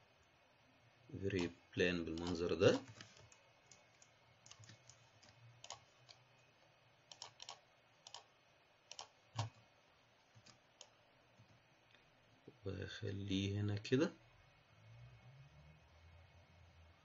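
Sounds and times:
mouse and keyboard clicks: 2.2s - 6.2s, 7.1s - 8.3s, 8.9s - 9.6s.

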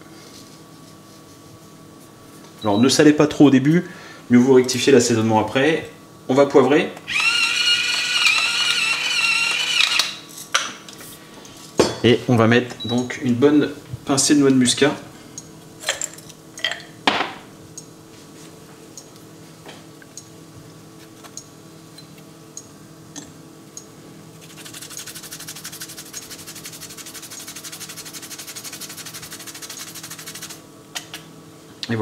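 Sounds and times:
nutmeg grated on rasp grater: 24.4s - 30.6s.

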